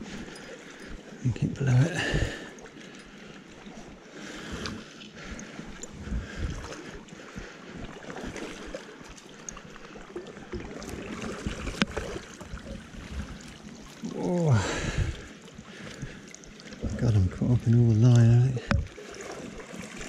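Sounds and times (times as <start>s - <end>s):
wind buffeting microphone: 5.9s - 7.4s, 14.6s - 15.3s
small knocks: 18.6s - 19.0s.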